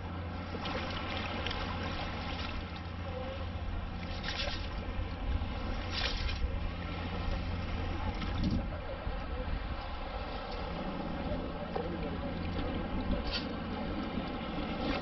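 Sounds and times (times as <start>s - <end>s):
low rumble: 0.0s - 15.0s
water swishing through scoop: 4.0s - 4.8s, 5.8s - 6.5s.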